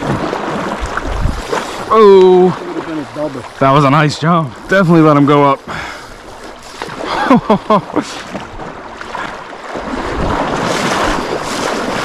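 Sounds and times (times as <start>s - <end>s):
wind buffeting microphone: 0.0s - 3.3s, 8.1s - 12.0s
rushing river water: 0.0s - 12.0s.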